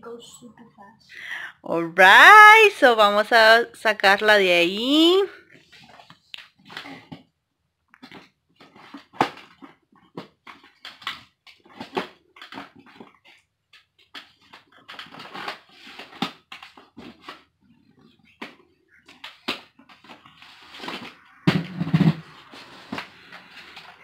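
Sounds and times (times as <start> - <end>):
cardboard and plastic packaging handled: 8.0 - 21.2.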